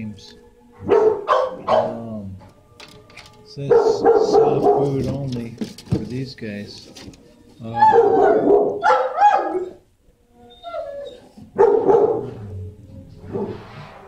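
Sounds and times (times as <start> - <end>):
dogs barking: 0.8 - 2.2, 3.6 - 5.2, 7.6 - 9.8, 10.6 - 12.7.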